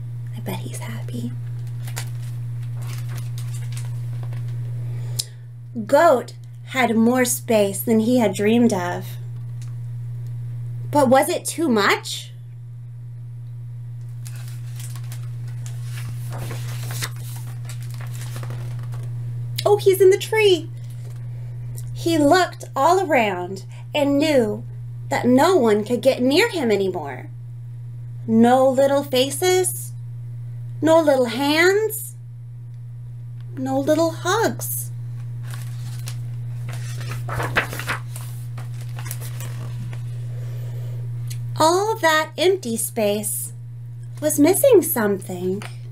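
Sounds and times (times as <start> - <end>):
steady low hum: 0.0 - 45.9
book pages rustling: 1.5 - 4.6, 14.2 - 19.1, 35.2 - 40.2.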